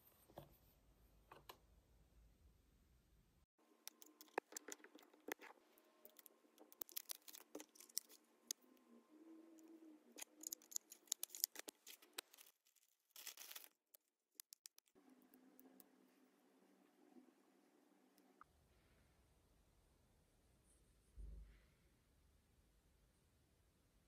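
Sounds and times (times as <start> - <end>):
packaging clicks taps and rustles: 6.1 - 8.2, 10.2 - 15.0
plastic wrapping crinkle: 6.1 - 8.2, 10.2 - 14.9.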